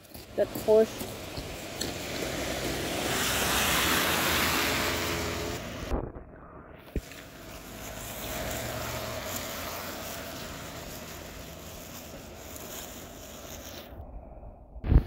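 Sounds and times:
car tyres hissing on wet road: 0.3s - 5.9s, 7.0s - 14.0s.

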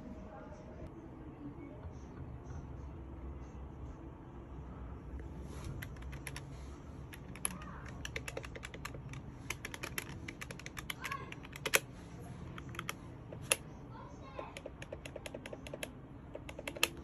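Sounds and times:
calculator keys clicking: 5.8s - 6.4s, 7.1s - 11.9s, 12.6s - 13.6s, 14.4s - 17.0s.

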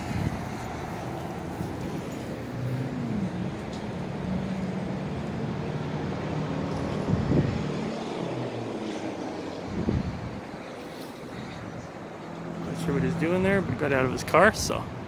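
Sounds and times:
road traffic: 0.0s - 15.0s
vehicle engine humming: 0.0s - 15.0s.

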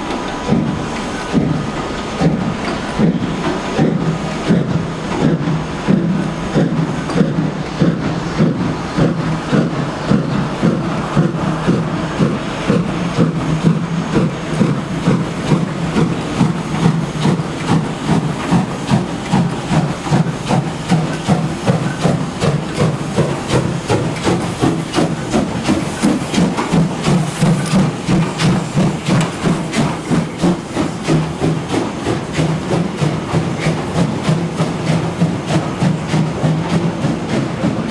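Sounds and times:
steam hissing: 0.0s - 37.9s
steam locomotive exhaust chuffs: 0.0s - 37.9s.

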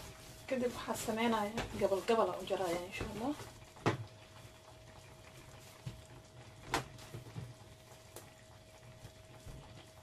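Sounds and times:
hands kneading bread dough: 0.0s - 3.8s.

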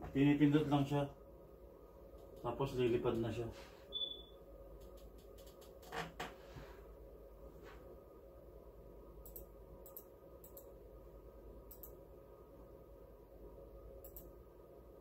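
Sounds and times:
steady low hum: 0.0s - 15.0s
soft clicks: 2.1s - 2.5s, 4.8s - 5.8s, 9.2s - 10.8s, 11.7s - 12.0s, 14.0s - 14.4s
faint ticks: 14.0s - 14.3s.

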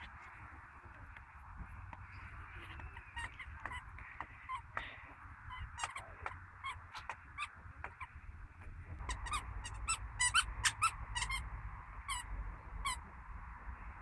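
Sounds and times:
squeaky toy squeaks: 2.6s - 4.6s, 5.5s - 8.2s, 9.0s - 11.4s, 12.0s - 13.0s.

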